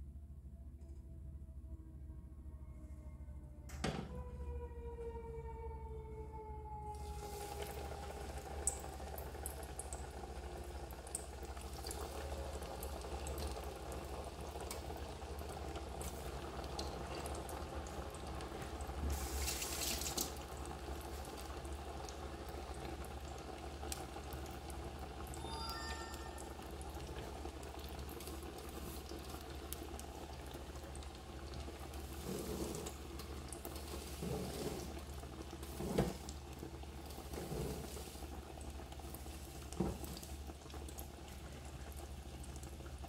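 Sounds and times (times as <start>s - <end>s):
food deep-frying in hot oil: 6.9s - 43.0s.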